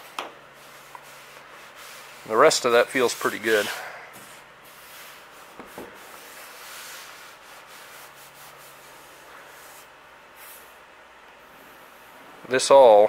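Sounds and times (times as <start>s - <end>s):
hand rubbing over primer: 0.5s - 10.8s.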